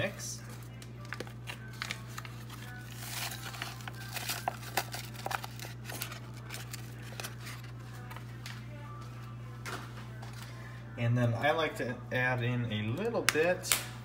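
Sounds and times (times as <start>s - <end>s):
seasoning packet crinkling: 1.6s - 7.6s.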